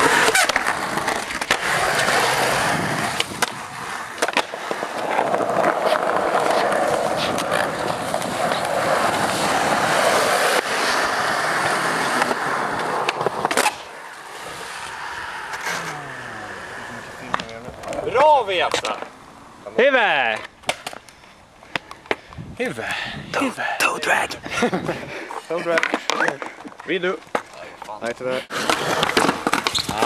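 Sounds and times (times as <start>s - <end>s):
skateboard clacking on concrete: 0.0s - 19.1s, 25.6s - 30.0s
skateboard wheels rolling on concrete: 0.0s - 30.0s.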